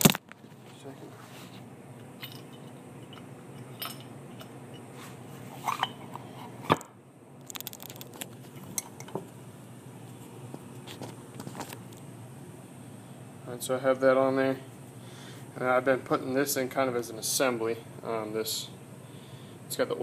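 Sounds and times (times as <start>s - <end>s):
metal parts clicking and clinking: 2.0s - 4.6s.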